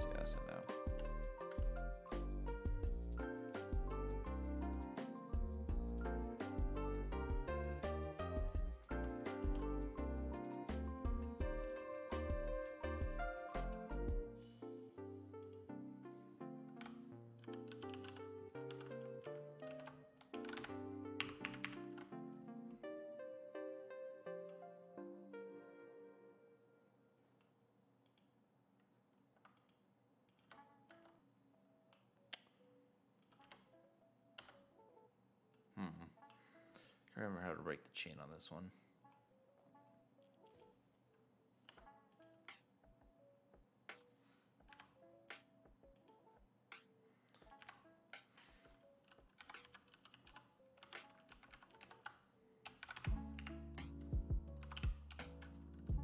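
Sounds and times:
keyboard typing: 0:00.0 - 0:14.2, 0:16.7 - 0:22.3, 0:29.4 - 0:31.2, 0:33.2 - 0:33.7, 0:34.4 - 0:34.7, 0:44.6 - 0:47.8, 0:49.0 - 0:55.8
faint background music: 0:00.0 - 0:27.7, 0:30.3 - 0:56.0
keyboard keystrokes: 0:16.8 - 0:22.1, 0:33.2 - 0:33.7, 0:49.1 - 0:53.5, 0:54.6 - 0:55.6
computer mouse clicks: 0:28.0 - 0:28.4, 0:29.4 - 0:31.2, 0:33.2 - 0:33.7, 0:40.4 - 0:40.7, 0:44.6 - 0:53.6.

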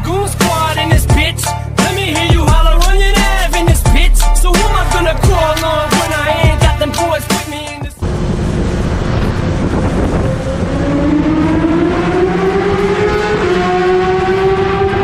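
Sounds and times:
motorcycle engine accelerating in tunnel: 0:08.0 - 0:15.0.

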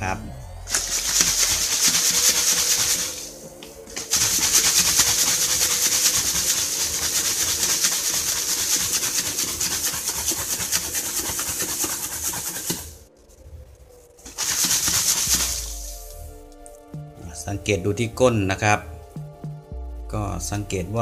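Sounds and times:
plastic bottle shaken with rattle and slosh: 0:00.7 - 0:13.0, 0:14.2 - 0:16.0.

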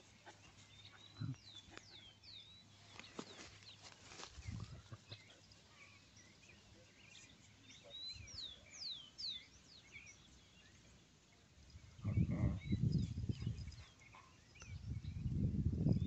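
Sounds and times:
birds chirping: 0:00.0 - 0:16.0
soft low rustles: 0:02.8 - 0:05.6.

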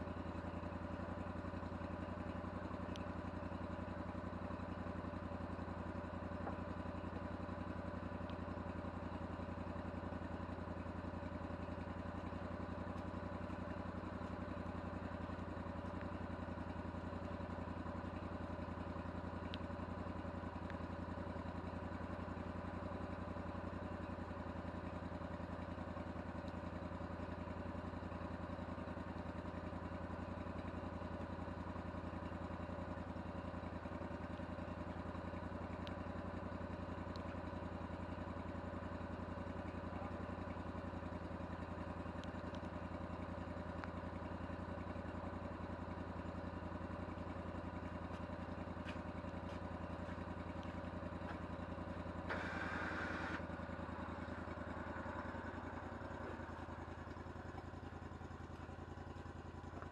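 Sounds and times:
sawmill engine idling: 0:00.0 - 0:59.9.

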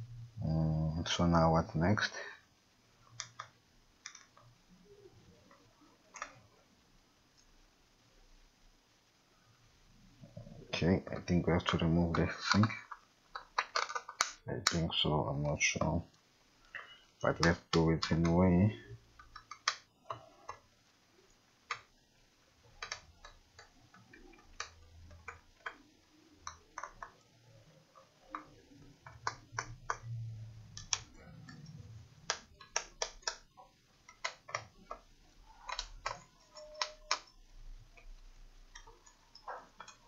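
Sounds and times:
sharp clicks and taps of parts: 0:11.2 - 0:14.8, 0:19.2 - 0:20.6, 0:22.8 - 0:25.8, 0:30.8 - 0:37.4.

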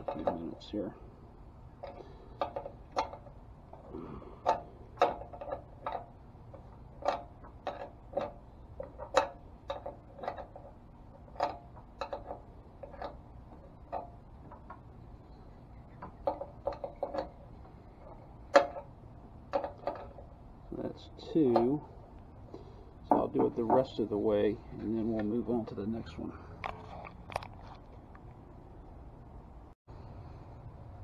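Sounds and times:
wrench clinking on metal: 0:04.4 - 0:13.2.

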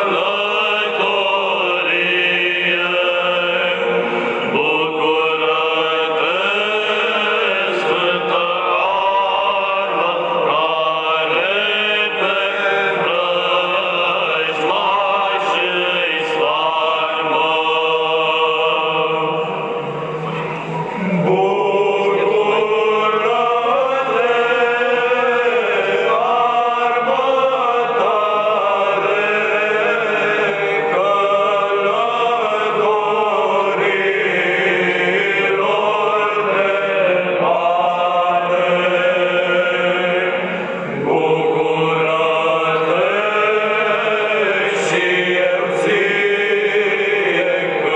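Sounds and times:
church choir chanting a hymn: 0:00.0 - 0:47.9.

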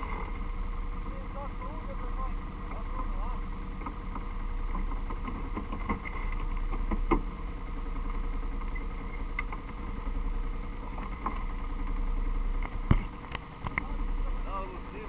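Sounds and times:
dirt bike engines idling: 0:00.0 - 0:15.0
scattered clicks and knocks: 0:03.8 - 0:07.3.

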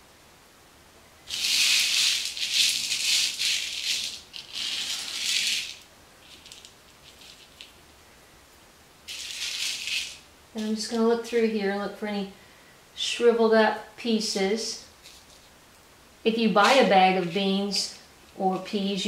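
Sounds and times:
dried peas rattling on metal pan: 0:01.3 - 0:07.8, 0:09.1 - 0:10.3.

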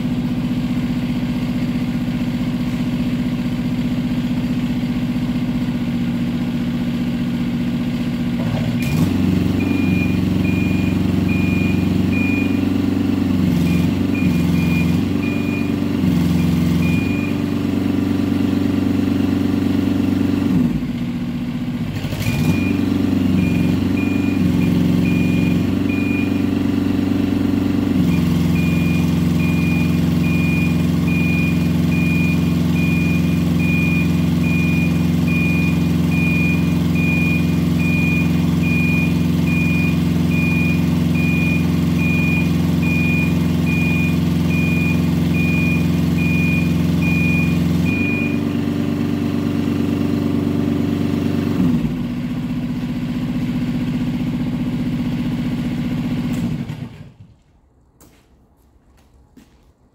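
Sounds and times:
high motion alarm beeping: 0:22.5 - 0:26.5, 0:28.2 - 0:48.6.

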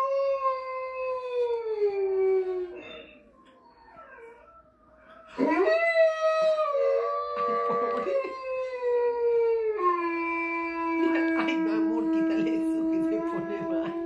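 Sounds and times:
dog howling: 0:03.6 - 0:14.0.

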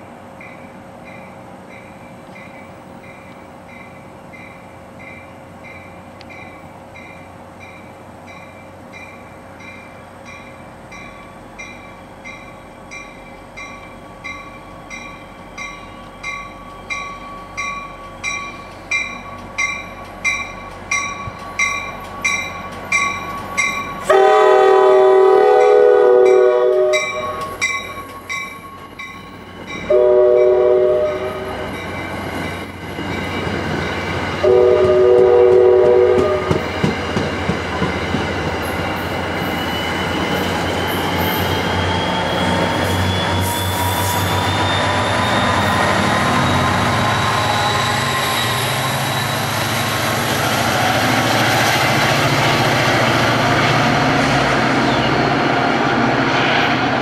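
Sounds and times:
train wheels rumbling on rail: 0:00.0 - 0:57.0
crossing bells ringing: 0:00.4 - 0:36.9
train horn: 0:24.0 - 0:27.6, 0:29.9 - 0:31.6, 0:34.4 - 0:36.7.

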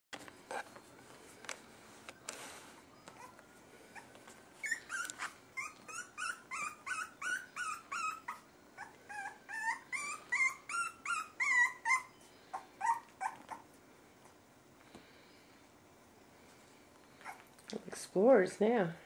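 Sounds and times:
puppy whining: 0:00.5 - 0:00.8, 0:02.1 - 0:14.4, 0:17.1 - 0:17.6.

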